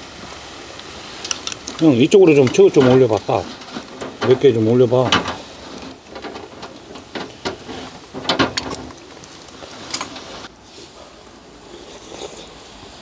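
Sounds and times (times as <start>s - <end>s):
crackling sizzle: 0.0s - 13.0s.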